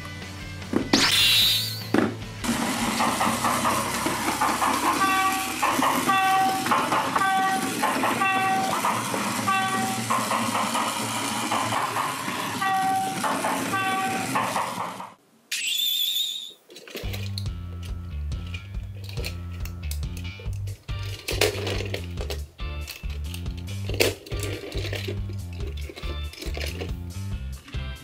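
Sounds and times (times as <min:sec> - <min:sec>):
short pitched tone: 0:01.0 - 0:01.9
toy train motor whirring: 0:02.5 - 0:15.0, 0:19.0 - 0:27.8.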